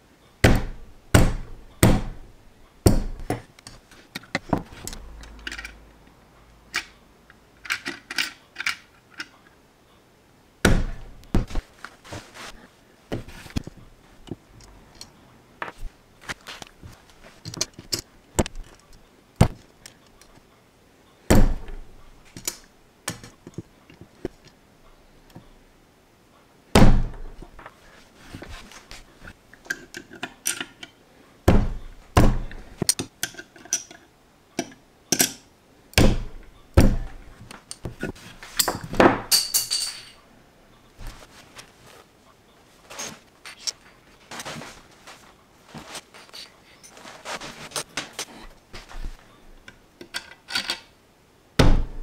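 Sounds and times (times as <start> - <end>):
heavier thumps: 10.6 - 11.7, 21.3 - 21.9, 26.8 - 27.4, 31.5 - 32.6, 51.6 - 52.0.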